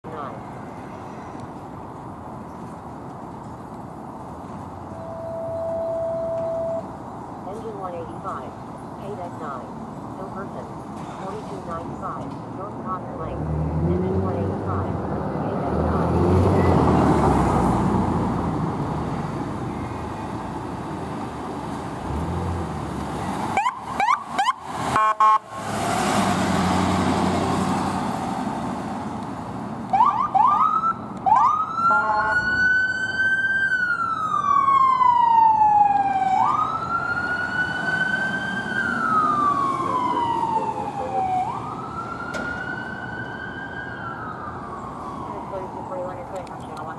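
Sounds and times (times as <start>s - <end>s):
siren chirps: 4.9s - 6.9s, 29.9s - 46.9s
horn honks: 5.0s - 6.9s, 25.0s - 25.4s, 31.9s - 32.5s
siren wailing: 5.0s - 6.9s, 29.9s - 46.9s.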